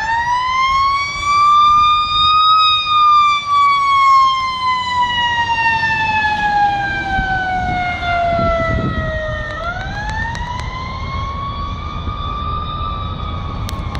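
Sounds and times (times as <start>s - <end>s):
ambulance siren wailing: 0.0s - 13.9s
vehicle engine and road noise: 0.0s - 13.9s.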